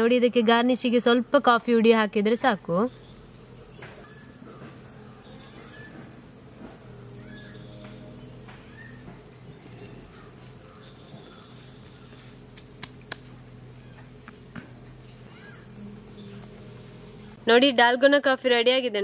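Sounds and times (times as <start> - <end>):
steady low hum: 0.0 - 19.0
faint bird chirps: 2.8 - 6.2, 7.1 - 12.6, 13.7 - 17.4
sharp clicks: 12.5 - 13.4.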